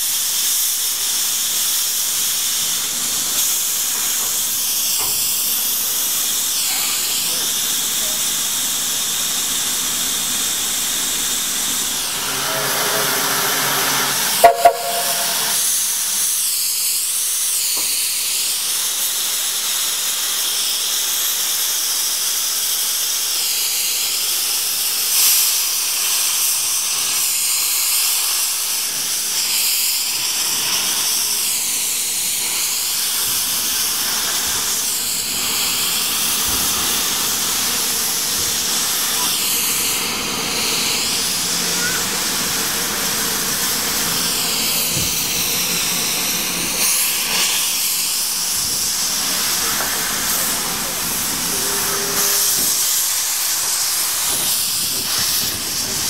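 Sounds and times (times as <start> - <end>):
steam locomotive venting steam: 0.0 - 56.0
brief pitched note: 12.4 - 15.6.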